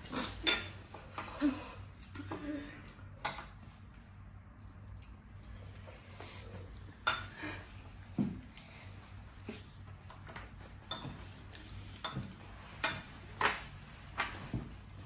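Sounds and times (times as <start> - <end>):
cutlery clinking against bowl: 0.4 - 0.9, 7.0 - 7.4, 10.9 - 13.2.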